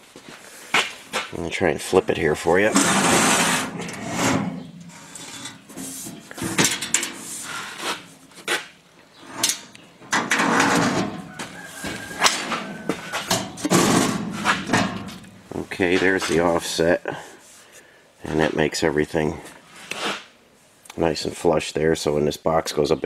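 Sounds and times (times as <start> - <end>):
metal scraping and sliding: 1.1 - 16.9, 19.6 - 20.3
metal toolbox clunks and knocks: 6.2 - 7.2, 9.4 - 15.2.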